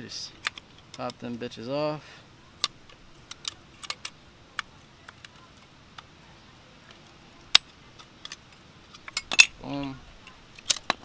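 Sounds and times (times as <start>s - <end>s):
light metallic clicks and taps: 0.4s - 1.5s.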